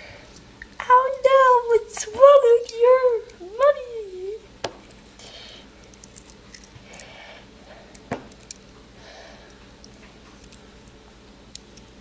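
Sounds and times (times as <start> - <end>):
soft hissy breath-like sounds: 5.1 - 8.2, 8.9 - 10.9.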